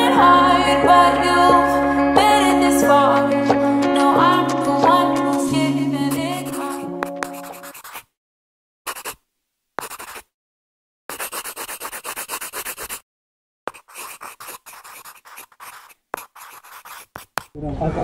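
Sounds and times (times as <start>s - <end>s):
background music: 0.0s - 7.7s
pencil sketching on paper: 3.9s - 8.1s, 8.9s - 9.2s, 9.8s - 10.3s, 11.1s - 13.0s, 13.7s - 17.6s.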